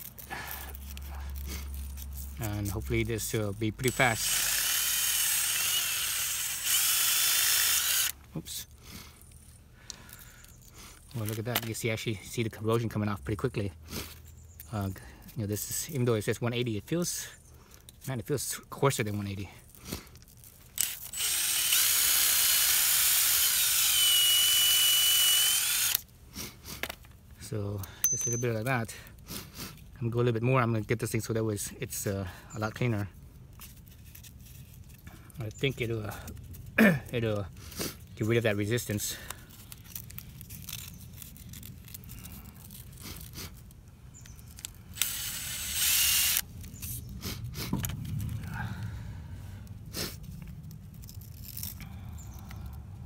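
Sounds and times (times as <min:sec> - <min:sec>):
impact driver whining: 0:03.8 - 0:08.2, 0:20.8 - 0:26.0, 0:45.0 - 0:46.4.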